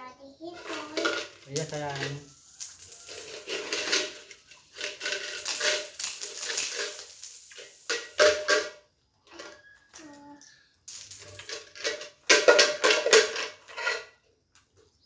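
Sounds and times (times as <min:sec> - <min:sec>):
coins rattling in tin bank: 0:00.6 - 0:08.8, 0:10.9 - 0:14.2.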